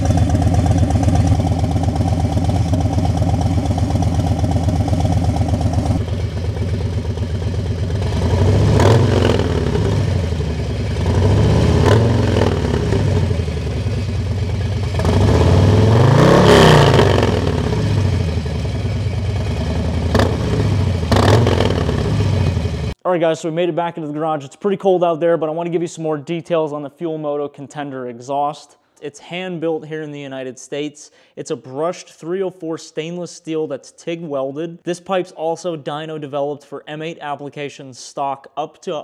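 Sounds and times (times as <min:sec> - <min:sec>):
motorcycle engine idling and revving: 0:00.0 - 0:23.0.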